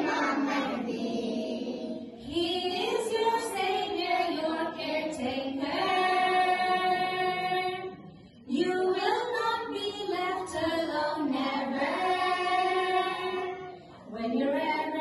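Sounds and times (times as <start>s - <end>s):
voices singing slow devotional song: 0.0s - 15.0s.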